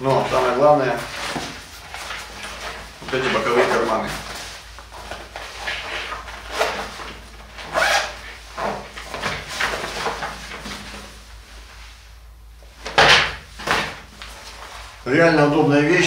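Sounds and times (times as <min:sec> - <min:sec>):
fabric bag rustling and zipping: 0:00.1 - 0:11.2.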